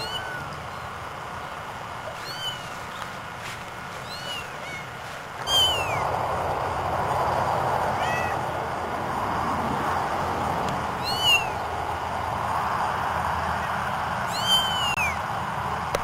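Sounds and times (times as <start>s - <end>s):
steady rushing noise: 0.0s - 16.0s
kittens mewing: 2.1s - 2.8s, 4.0s - 6.1s, 7.8s - 8.6s.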